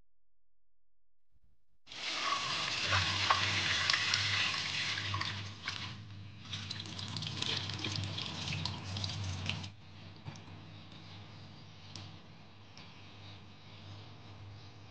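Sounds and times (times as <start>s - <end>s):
hands rinsing squid: 1.9s - 9.7s
tap water running into bowl: 2.0s - 5.9s, 6.5s - 9.7s.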